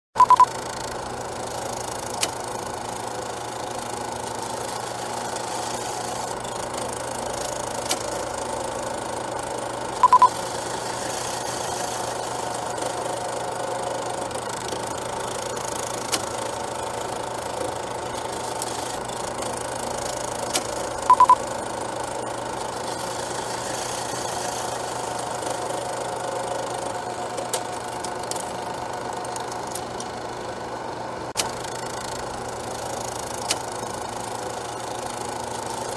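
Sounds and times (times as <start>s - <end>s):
double beeps: 0.2s - 0.5s, 10.0s - 10.3s, 21.1s - 21.4s.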